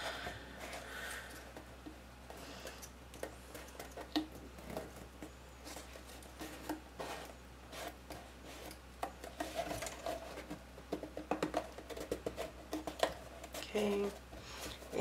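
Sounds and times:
cardstock rustling and tapping: 0:03.1 - 0:15.0.

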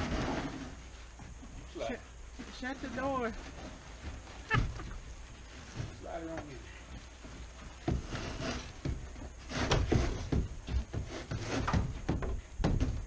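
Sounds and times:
wooden wall knocking on floor: 0:08.8 - 0:13.0.

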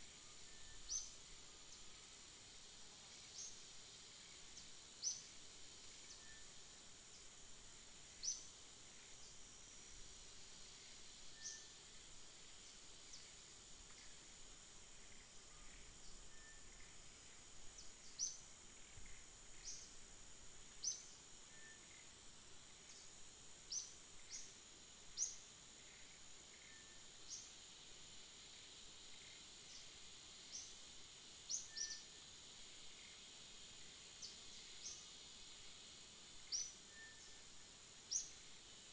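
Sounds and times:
high-pitched insect-like hum: 0:00.0 - 0:38.9
faint bird chirps: 0:00.1 - 0:01.9, 0:04.2 - 0:06.6, 0:11.3 - 0:11.8, 0:15.0 - 0:20.0, 0:20.8 - 0:22.2, 0:22.9 - 0:27.5, 0:31.4 - 0:32.2, 0:36.4 - 0:38.5.

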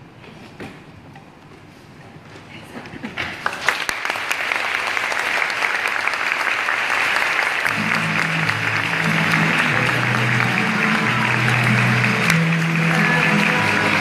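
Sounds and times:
audience clapping: 0:03.3 - 0:14.0
music with long low notes: 0:07.7 - 0:14.0.

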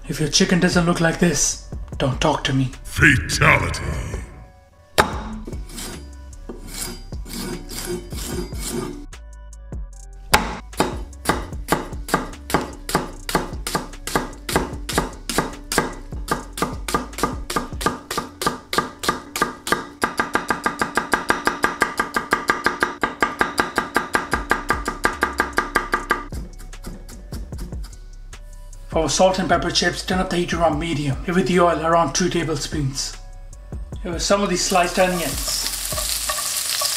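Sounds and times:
knife chopping on wooden board: 0:10.3 - 0:26.2.

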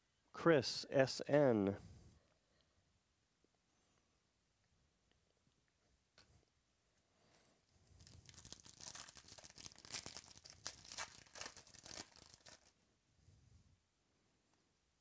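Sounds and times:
card pack wrapper tearing: 0:08.0 - 0:12.8.

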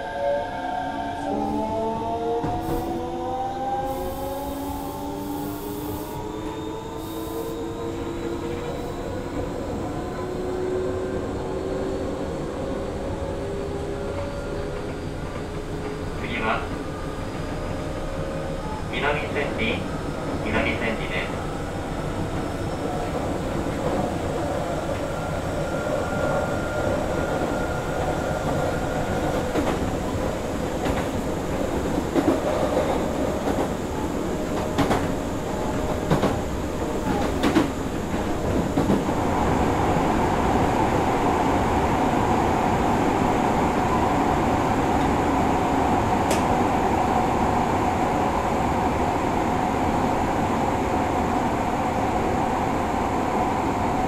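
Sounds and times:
train wheel and track noise: 0:00.0 - 0:54.0
rail-joint clicks: 0:46.3 - 0:46.5.

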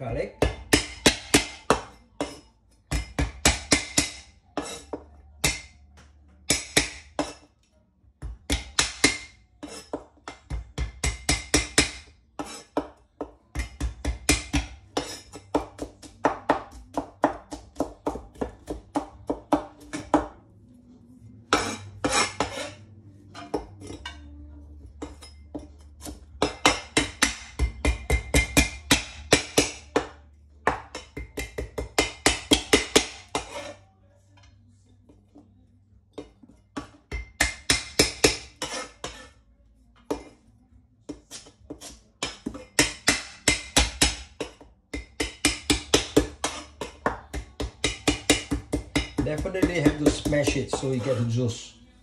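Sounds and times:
cleaver chopping on wooden board: 0:26.0 - 0:30.1, 0:30.7 - 0:33.6, 0:41.1 - 0:50.9.

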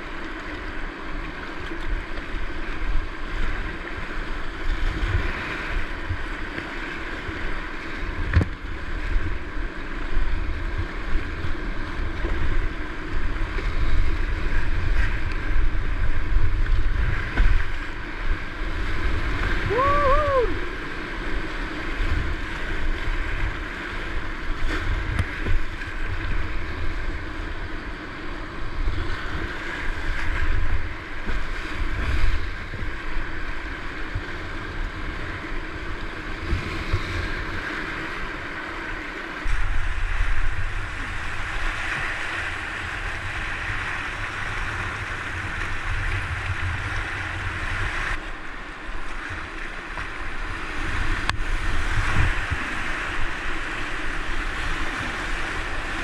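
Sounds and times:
whitewater rushing and splashing: 0:00.0 - 0:56.0
wind buffeting microphone: 0:49.0 - 0:56.0.

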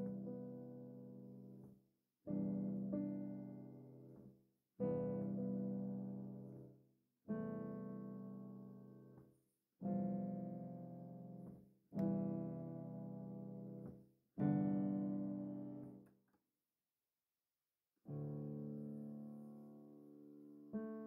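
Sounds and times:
slow piano chords: 0:00.0 - 0:01.7, 0:02.3 - 0:06.7, 0:09.8 - 0:16.0.

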